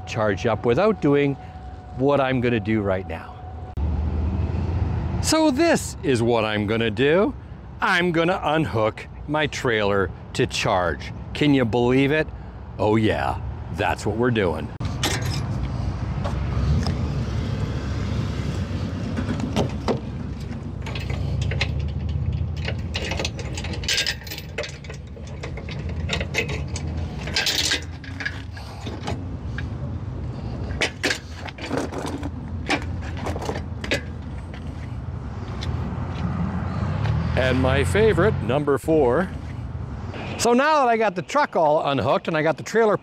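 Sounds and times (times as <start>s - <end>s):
metal rattle: 14.8s - 15.6s, 19.1s - 29.8s, 30.4s - 34.9s
trailer hitch clanking: 14.8s - 16.4s, 19.0s - 35.7s
safety chains clinking: 20.8s - 29.8s.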